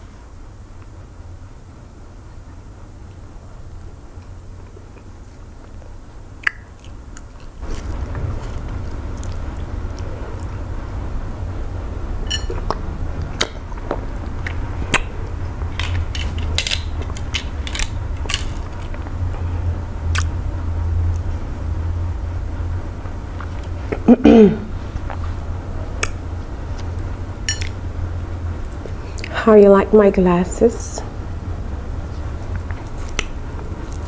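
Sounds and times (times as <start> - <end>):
low steady rumble: 0.0 - 34.0
wet mouth clicks and smacks: 6.4 - 7.3, 20.1 - 20.3.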